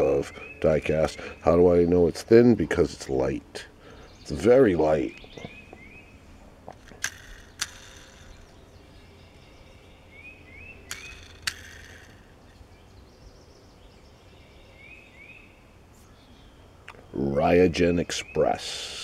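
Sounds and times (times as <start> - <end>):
sharp clicks: 6.6 - 8.6, 10.8 - 12.6
toy truck handling noise: 6.7 - 8.5, 10.9 - 12.4.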